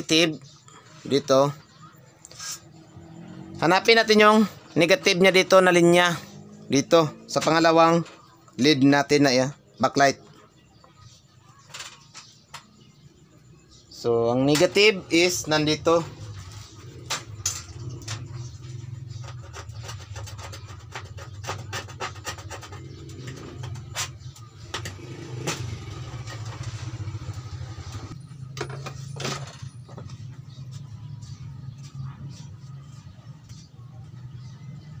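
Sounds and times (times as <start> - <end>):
tools clicking and scraping on metal: 14.5 - 26.8.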